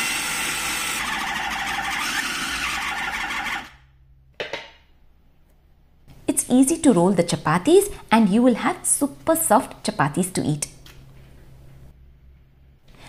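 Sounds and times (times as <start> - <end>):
food processor motor running: 0.0 - 3.8.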